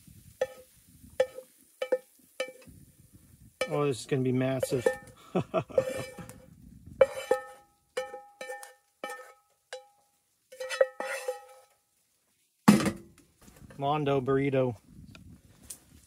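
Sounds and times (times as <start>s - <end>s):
spatula knocking metal frying pan: 0.4s - 2.6s, 4.5s - 5.2s, 7.0s - 9.9s.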